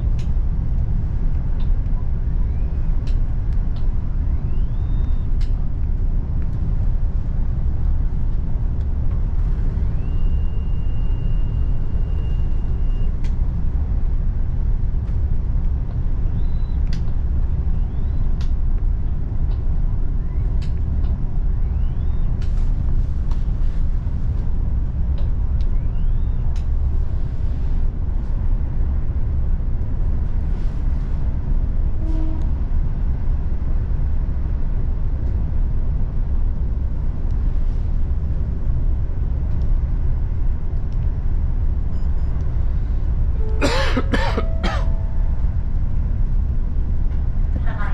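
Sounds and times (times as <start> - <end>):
train rumble inside carriage: 0.0 - 47.9
person coughing: 43.6 - 45.0.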